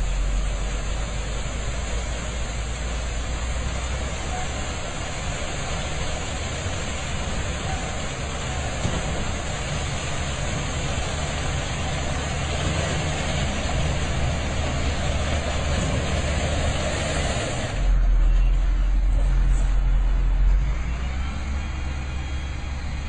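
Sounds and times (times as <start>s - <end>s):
truck engine running: 0.0s - 23.0s
broad hiss: 0.1s - 17.9s.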